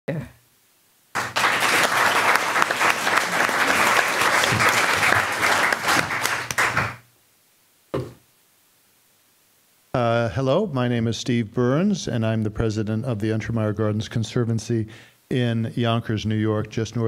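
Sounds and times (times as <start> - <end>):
audience applauding: 1.1 - 7.0.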